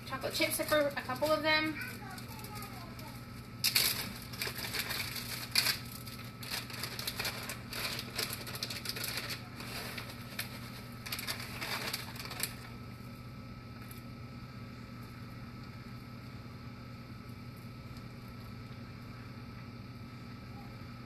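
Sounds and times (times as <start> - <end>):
steady low hum: 0.0 - 21.0
chip bag crinkling: 0.2 - 12.9.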